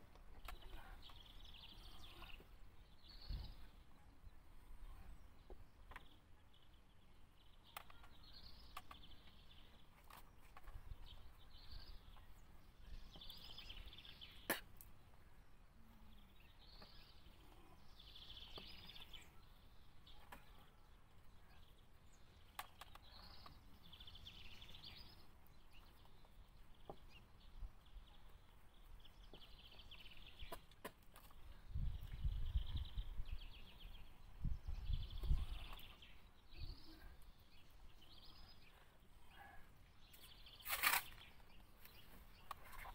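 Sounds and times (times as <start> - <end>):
bird singing: 0.0 - 42.9.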